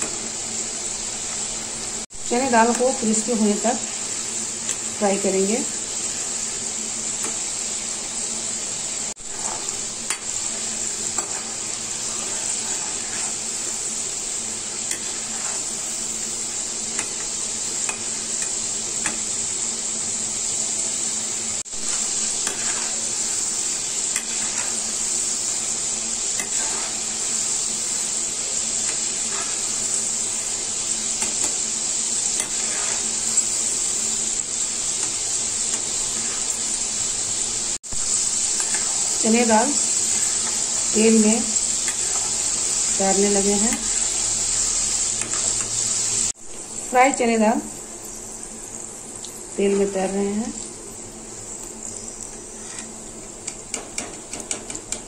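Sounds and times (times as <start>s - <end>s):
lentils sizzling in hot oil: 0.0s - 55.0s
spoon scraping metal pan: 9.3s - 13.6s, 14.8s - 15.8s, 21.9s - 23.4s, 26.2s - 27.2s, 32.2s - 33.4s.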